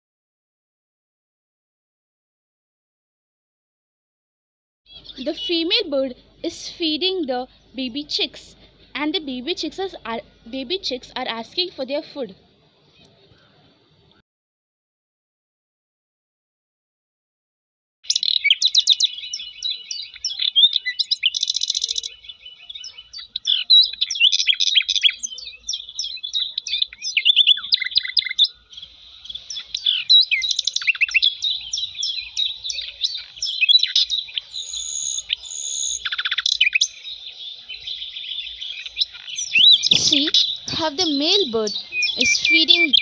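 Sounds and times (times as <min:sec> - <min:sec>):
chicks chirping rapidly: 0:18.1 - 0:43.0.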